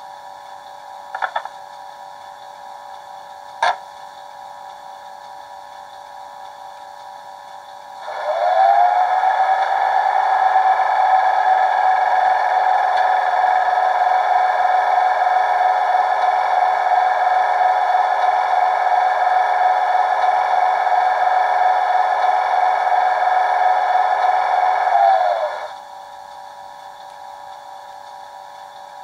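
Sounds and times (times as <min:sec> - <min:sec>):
air compressor whine: 0:06.1 - 0:29.0.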